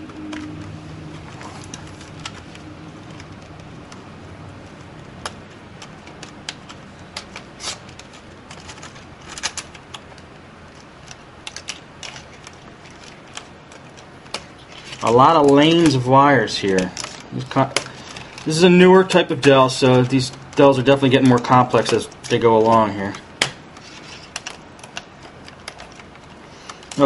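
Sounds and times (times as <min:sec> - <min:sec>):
plastic parts clicking and tapping: 0:00.2 - 0:27.0.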